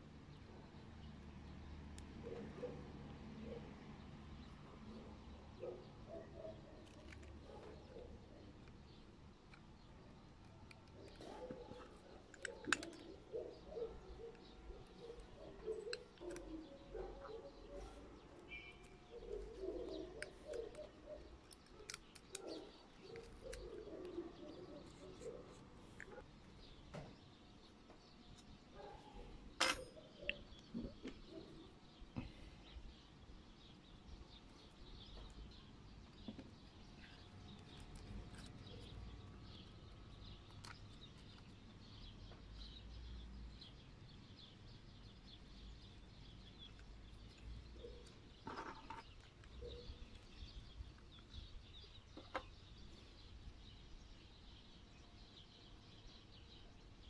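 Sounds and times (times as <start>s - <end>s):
faint bird chirping: 0.3s - 57.0s
sharp metal clicks of tools: 29.6s - 30.4s.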